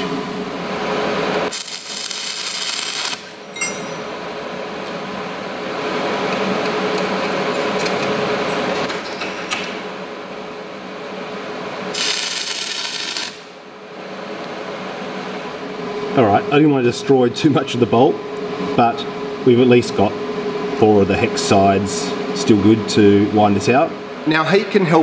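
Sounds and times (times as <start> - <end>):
welding arc crackling: 1.5 - 3.5, 11.9 - 13.6.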